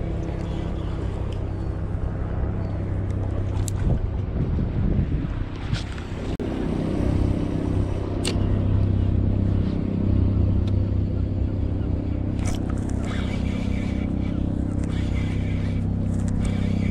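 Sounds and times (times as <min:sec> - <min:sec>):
low hum: 0:00.0 - 0:16.9
wind noise on microphone: 0:03.3 - 0:06.4.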